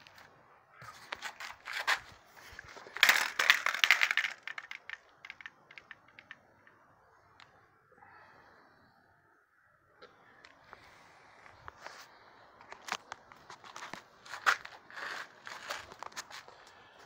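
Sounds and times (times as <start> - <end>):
phone handling rustling and scraping: 0.0 - 6.4.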